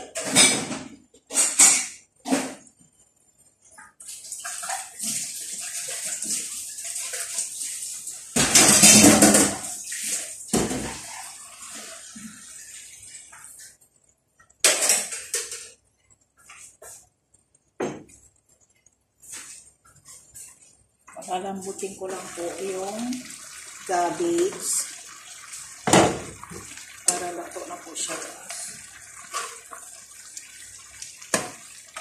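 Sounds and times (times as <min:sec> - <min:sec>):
food sizzling in covered pan: 0:21.2 - 0:32.0.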